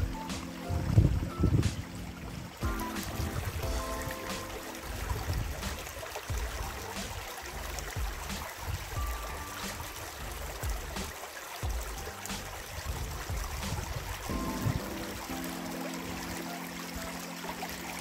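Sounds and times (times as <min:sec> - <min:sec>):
brook trickling: 0:00.0 - 0:18.0.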